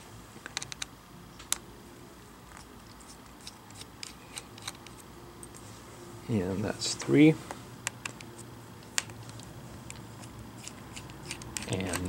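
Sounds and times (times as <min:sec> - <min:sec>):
screwdriver clicks and ticks: 0:10.6 - 0:12.0.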